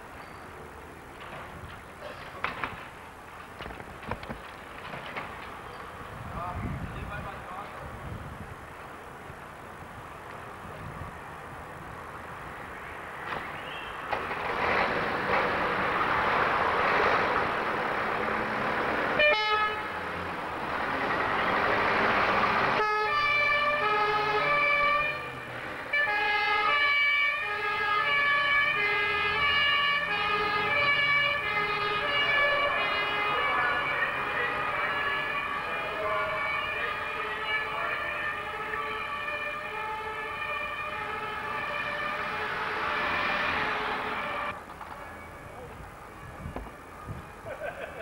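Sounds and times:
ambulance engine running: 0:14.1 - 0:47.9
two-tone siren: 0:22.8 - 0:47.3.

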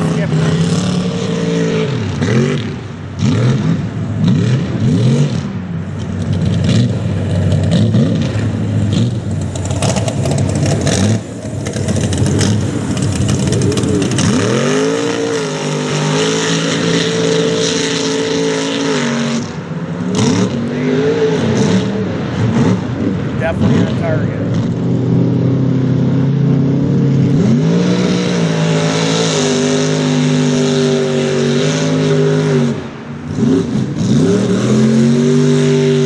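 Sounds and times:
truck engine revving: 0:00.0 - 0:36.0
tyres churning mud: 0:06.4 - 0:19.4.

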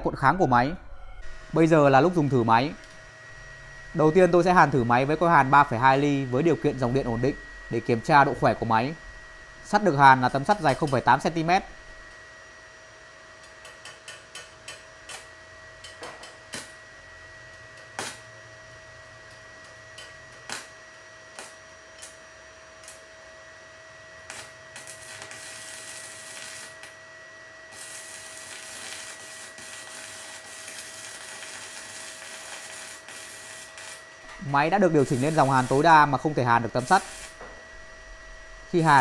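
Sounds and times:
faint steady whine: 0:00.0 - 0:39.0
welding arc crackling and hissing: 0:01.2 - 0:12.2, 0:13.4 - 0:18.3, 0:19.2 - 0:23.3, 0:24.2 - 0:27.1, 0:27.7 - 0:39.0
electrode cracks and snaps: 0:24.3 - 0:27.0, 0:27.7 - 0:34.0.

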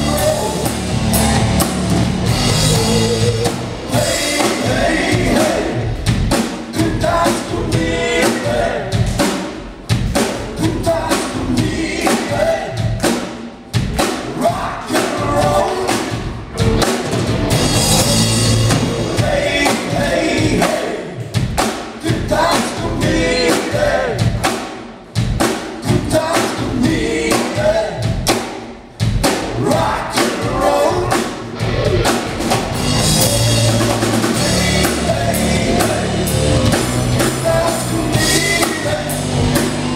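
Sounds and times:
bass guitar: 0:00.0 - 0:08.2, 0:15.2 - 0:20.6, 0:30.8 - 0:39.9
drum kit: 0:00.0 - 0:39.9
electric guitar: 0:31.5 - 0:39.9.

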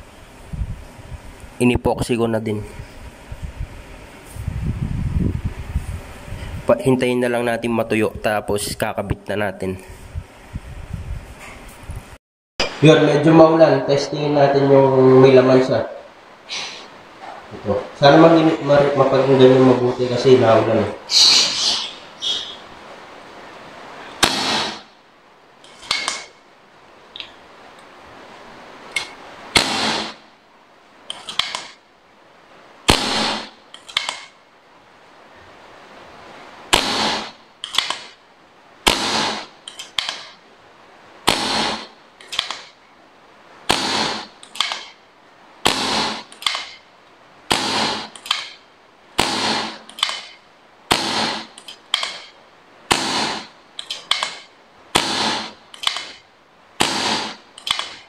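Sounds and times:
short rush of air: 0:02.7 - 0:06.7.

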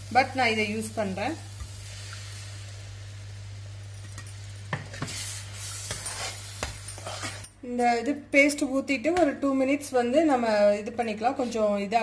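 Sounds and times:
steady low hum: 0:00.0 - 0:11.3
soft sizzle: 0:00.0 - 0:12.0
metal spoon stirring in pan: 0:04.7 - 0:07.5.

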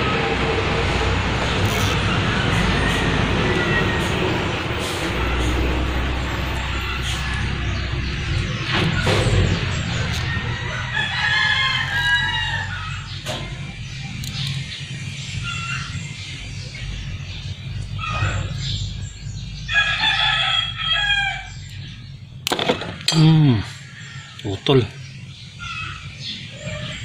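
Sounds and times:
rooster crowing: 0:10.1 - 0:13.1, 0:19.7 - 0:21.6.

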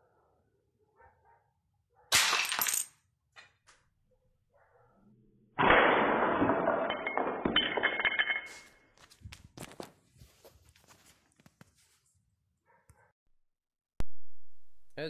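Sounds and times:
ceramic tile shattering: 0:02.1 - 0:03.0, 0:05.7 - 0:08.8.

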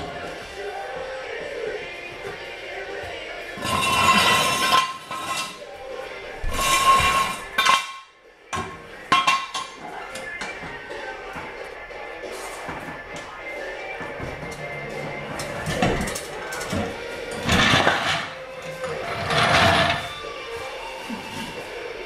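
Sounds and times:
floor jack clanking: 0:03.6 - 0:05.6, 0:06.4 - 0:08.0, 0:12.5 - 0:20.2.

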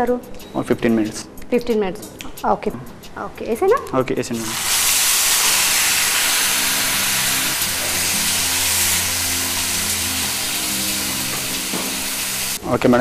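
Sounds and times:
carrots sizzling in oil: 0:04.4 - 0:12.6.

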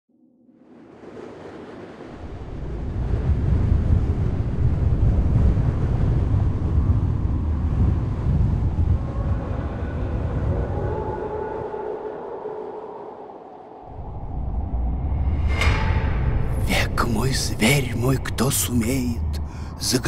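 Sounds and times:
deep noisy rumble: 0:13.8 - 0:20.0.

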